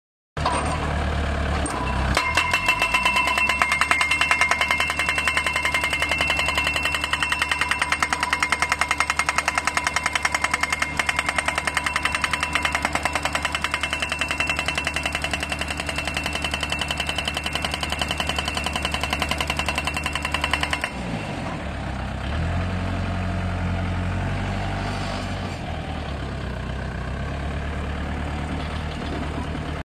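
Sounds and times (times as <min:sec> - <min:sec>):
diesel engine running: 0:00.4 - 0:29.8
hydraulic hammer pounding steel post: 0:01.7 - 0:21.1.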